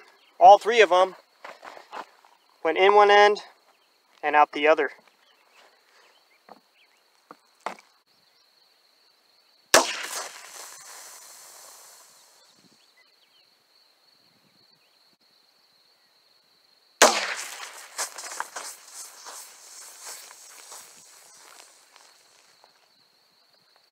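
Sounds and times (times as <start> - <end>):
gunshot: 9.8 - 11.2, 17.0 - 18.3
soda hissing from bottle: 10.1 - 12.6.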